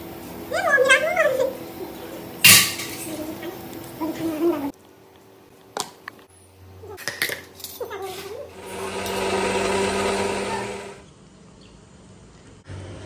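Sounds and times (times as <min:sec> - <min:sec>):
mixer grinder motor running: 0:08.5 - 0:11.0.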